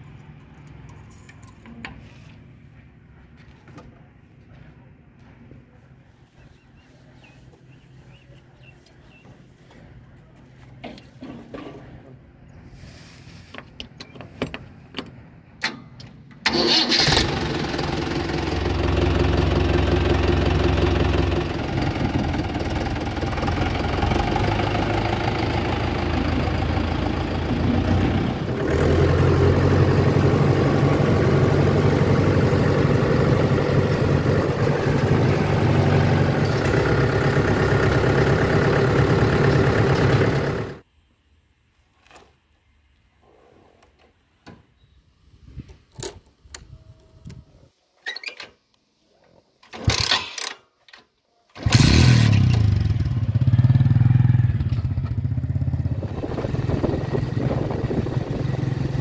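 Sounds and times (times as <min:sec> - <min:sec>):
tractor diesel engine running: 0:16.4 - 0:40.8, 0:51.6 - 0:59.0.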